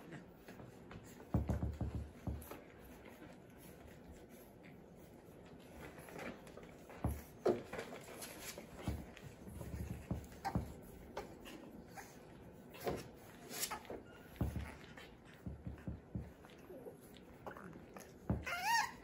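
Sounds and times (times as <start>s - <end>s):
small puppy noise: 0.0s - 19.0s
puppy paws and toys knocking: 0.9s - 2.9s, 6.1s - 11.6s, 12.7s - 16.7s, 18.1s - 19.0s.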